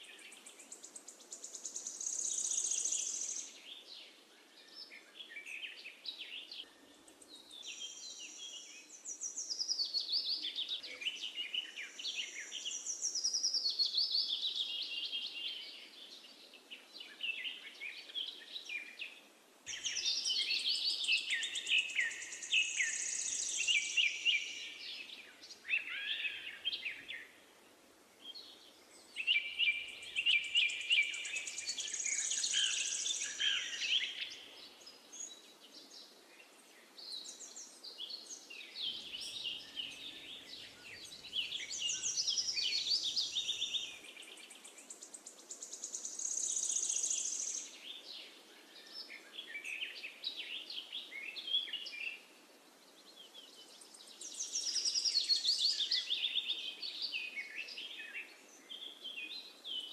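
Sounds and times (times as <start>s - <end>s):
faint background hiss: 0.0s - 59.9s
birds chirping and singing: 37.0s - 52.2s, 53.1s - 59.9s.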